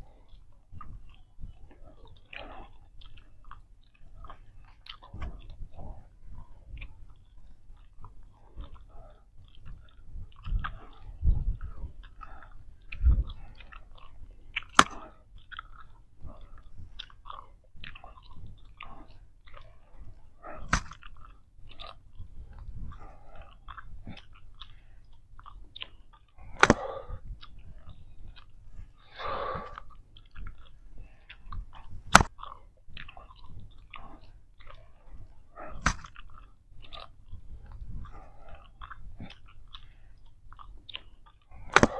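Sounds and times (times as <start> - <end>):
bubble gum chewing: 0.0 - 41.9
gum snapping: 0.0 - 41.9.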